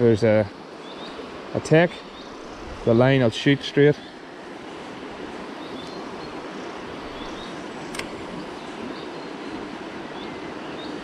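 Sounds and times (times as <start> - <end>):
river rushing over stones: 0.2 - 11.0
sharp click: 7.9 - 8.2.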